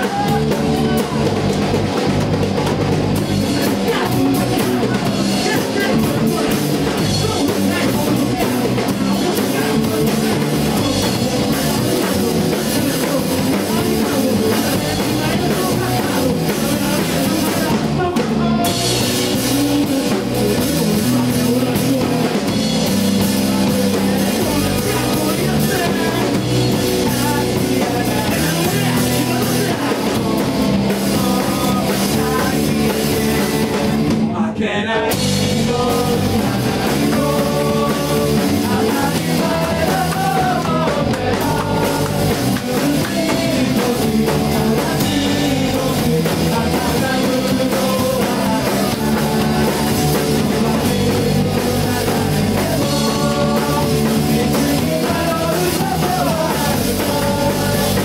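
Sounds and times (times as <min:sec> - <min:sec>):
person singing into a microphone: 0:00.0 - 0:01.6, 0:02.6 - 0:58.0
live rock band playing: 0:00.0 - 0:58.0.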